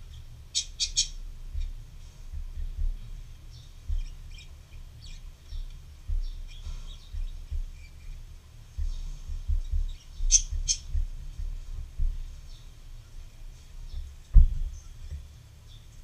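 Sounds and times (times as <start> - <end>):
hand knocking on paper: 8.7 - 12.4, 13.9 - 15.3
marker squeaking on paper: 9.6 - 11.0.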